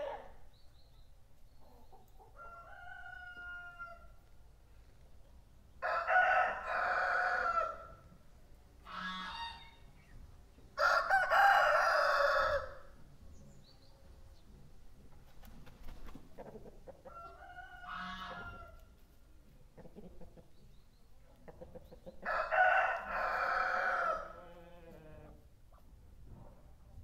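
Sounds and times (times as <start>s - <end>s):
rooster crowing: 2.4s - 4.1s, 5.8s - 7.9s, 10.8s - 12.9s, 22.2s - 24.4s.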